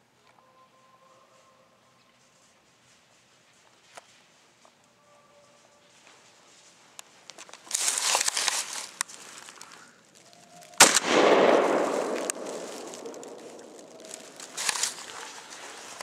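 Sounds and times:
rustling and handling noise: 0:05.6 - 0:16.0
loud gunshot echoing: 0:10.8 - 0:14.8.

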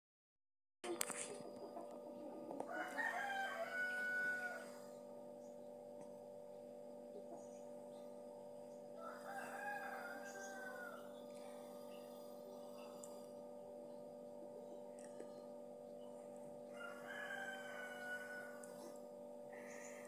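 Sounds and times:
steady low hum: 0:00.8 - 0:20.0
rooster crowing: 0:01.6 - 0:05.0, 0:08.9 - 0:11.3, 0:16.6 - 0:20.0.

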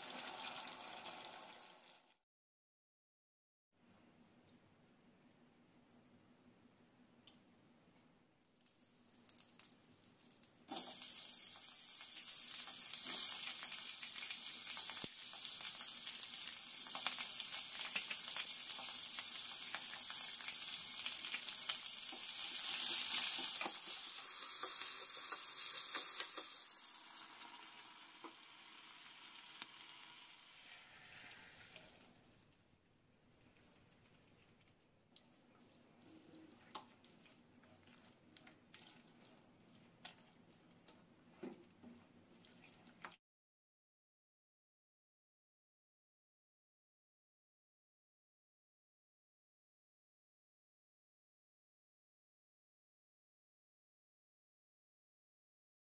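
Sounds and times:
vegetables sizzling in hot oil: 0:00.0 - 0:02.2, 0:09.3 - 0:32.0.

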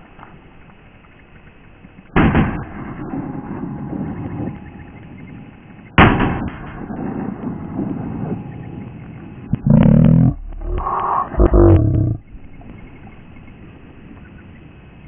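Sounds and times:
shotgun shots with echo: 0:02.2 - 0:03.6, 0:06.0 - 0:08.0.

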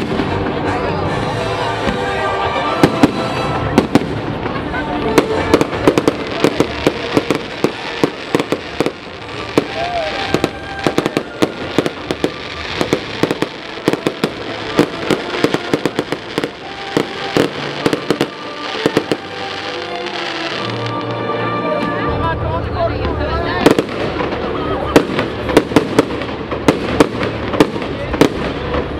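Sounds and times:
fireworks bangs and pops: 0:00.0 - 0:01.0, 0:01.7 - 0:21.1, 0:23.0 - 0:28.9.

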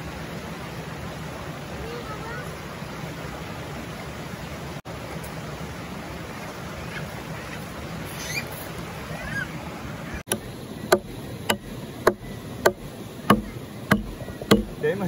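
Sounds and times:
river water rushing: 0:00.0 - 0:15.0
birds chirping: 0:06.6 - 0:15.0
hatchet chopping a log: 0:10.3 - 0:14.8.

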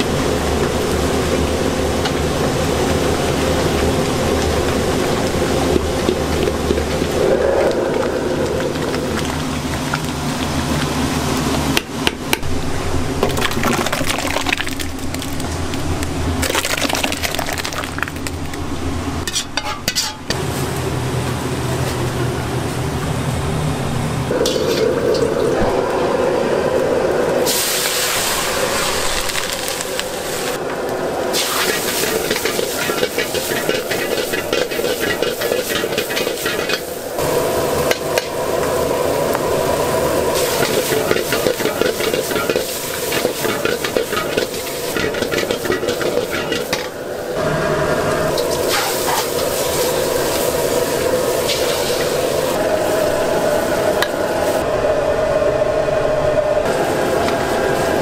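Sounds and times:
food frying: 0:00.0 - 0:21.5, 0:27.4 - 0:30.6, 0:31.3 - 0:53.0
gas burner roaring: 0:00.0 - 0:58.0
ladle scraping in wok: 0:19.2 - 0:20.4, 0:31.3 - 0:38.4, 0:40.2 - 0:47.0, 0:48.3 - 0:52.6.

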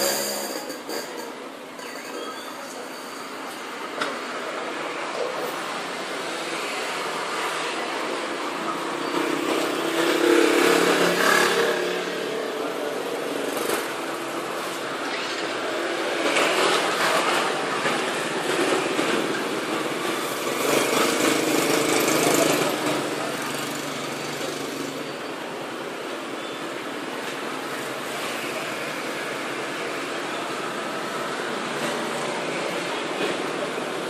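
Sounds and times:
motorcycles passing: 0:05.7 - 0:25.6.

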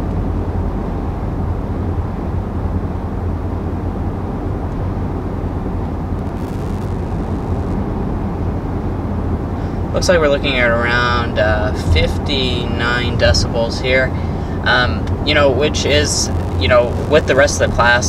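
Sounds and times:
road and wind rumble in car: 0:00.0 - 0:18.0
car engine: 0:04.1 - 0:11.1, 0:11.8 - 0:18.0.

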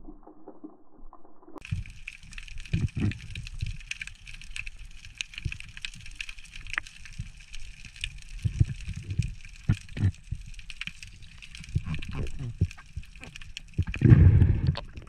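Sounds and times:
underwater crackle of faint clicks: 0:01.6 - 0:14.9
dull low water thumps: 0:13.8 - 0:15.0.

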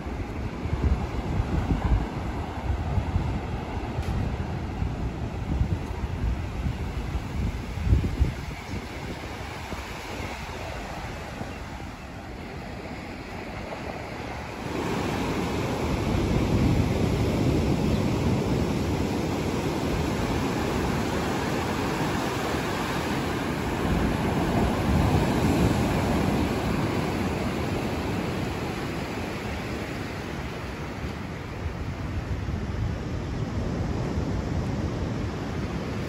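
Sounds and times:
surf breaking on sandy beach: 0:00.0 - 0:36.0
wind on microphone: 0:00.0 - 0:36.0.

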